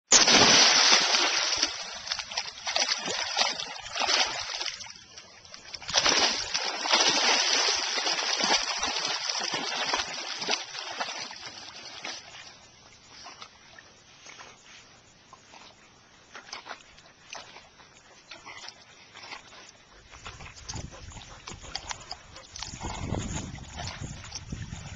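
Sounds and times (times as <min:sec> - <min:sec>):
dogs splashing through water: 0:00.1 - 0:13.6, 0:16.2 - 0:24.9.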